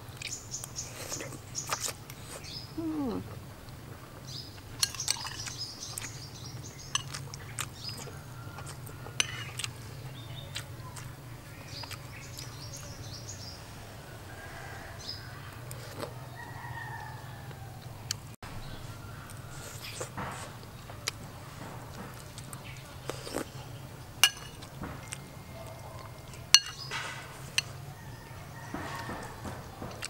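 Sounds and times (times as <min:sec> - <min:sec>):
birds chirping: 0:00.0 - 0:30.0
chewing and spoon clicks: 0:06.9 - 0:09.8.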